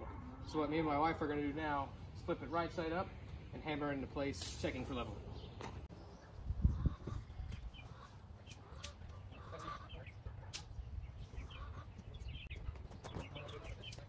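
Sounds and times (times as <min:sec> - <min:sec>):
chickens clucking softly: 0:06.2 - 0:14.0.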